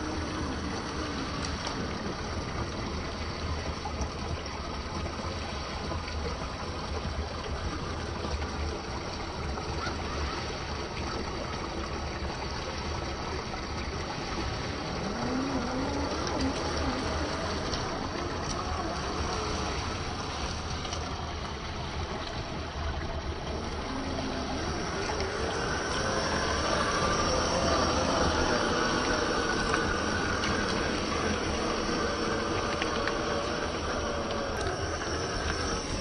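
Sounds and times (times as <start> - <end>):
steady rushing noise: 11.4 - 36.0
electric motor whining: 14.3 - 20.9, 23.5 - 36.0.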